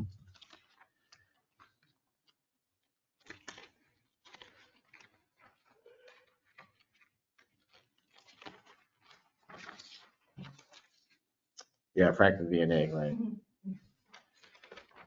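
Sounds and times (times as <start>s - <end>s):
paper sheets rustling: 0.0s - 2.4s, 3.2s - 11.2s, 13.8s - 15.0s.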